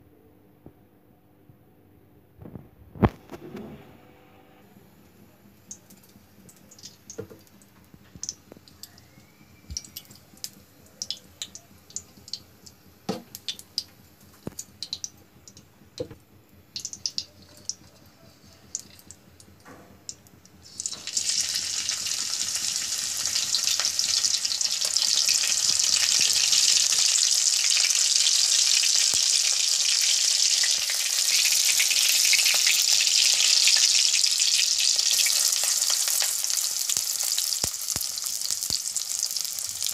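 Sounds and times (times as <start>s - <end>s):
chillies sizzling in hot oil: 20.6s - 39.9s.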